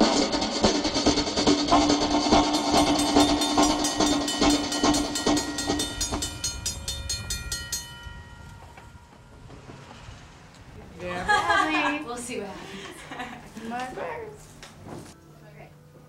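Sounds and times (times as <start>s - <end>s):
freight train rumbling past: 0.0s - 12.6s
railroad crossing bell ringing: 2.6s - 10.4s.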